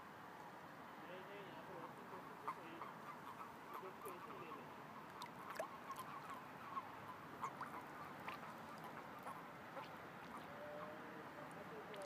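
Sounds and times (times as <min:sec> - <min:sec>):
chorus of toad calls: 0:02.4 - 0:12.0.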